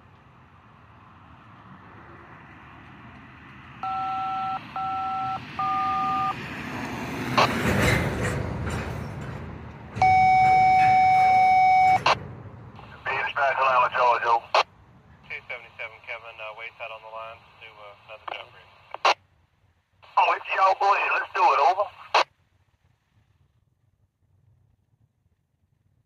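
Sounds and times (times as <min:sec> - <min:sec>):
long steady tone: 0:03.8 - 0:06.4, 0:10.0 - 0:12.2
two-tone touch-tone beeps: 0:03.8 - 0:06.4, 0:10.0 - 0:12.2.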